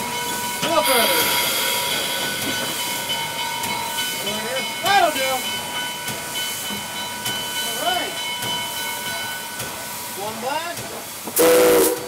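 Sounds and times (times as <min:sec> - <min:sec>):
steam hiss: 0:00.0 - 0:12.0
steam whistle blast: 0:11.4 - 0:12.0.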